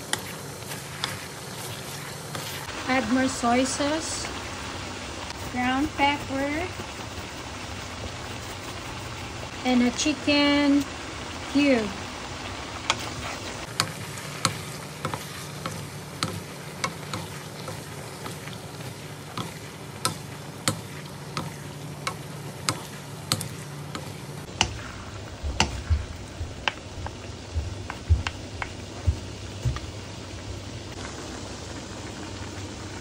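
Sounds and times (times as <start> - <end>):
food sizzling: 0.0 - 33.0
wooden spatula knocking on frying pan: 19.3 - 24.8, 25.4 - 30.0.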